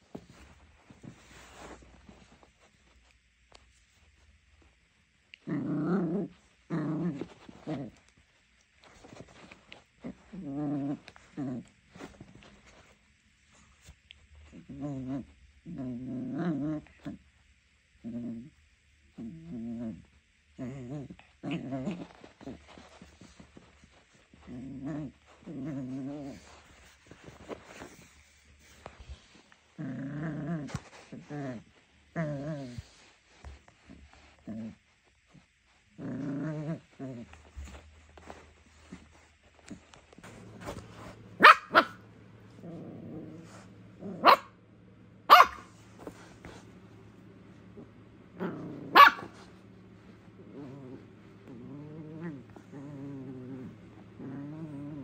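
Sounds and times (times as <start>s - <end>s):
soft scuffling: 0.0s - 4.7s, 7.0s - 14.0s, 37.1s - 44.0s, 45.1s - 55.0s
puppy growling: 5.3s - 8.1s, 10.0s - 12.3s, 14.5s - 17.2s, 19.2s - 23.2s, 24.4s - 28.0s, 29.8s - 32.9s, 35.9s - 44.6s, 45.2s - 55.0s
puppy yapping: 41.4s - 42.0s, 44.2s - 44.5s, 45.3s - 45.7s, 48.9s - 49.4s.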